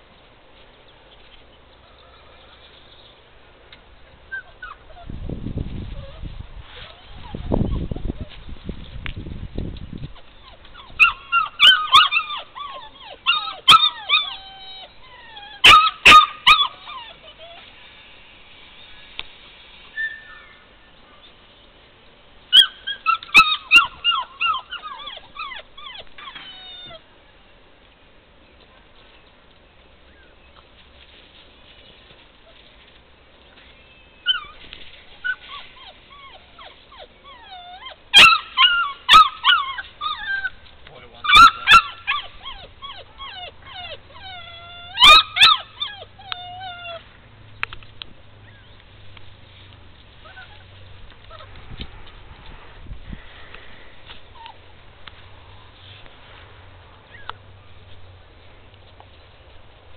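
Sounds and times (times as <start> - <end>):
puppy yelping and whimpering: 4.3 - 5.2, 5.9 - 8.3, 10.2 - 17.8, 20.0 - 20.6, 22.5 - 27.0, 34.2 - 40.6, 41.2 - 47.1, 50.2 - 51.6, 54.3 - 54.8, 57.1 - 57.4.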